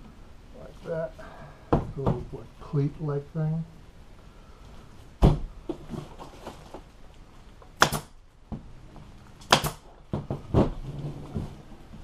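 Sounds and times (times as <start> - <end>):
staple gun shots: 7.8 - 8.2, 9.4 - 9.8.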